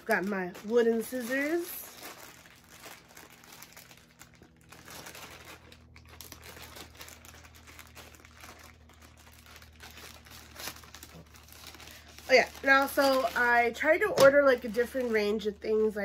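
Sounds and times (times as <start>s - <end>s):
wrapping crinkling: 0.0s - 16.0s.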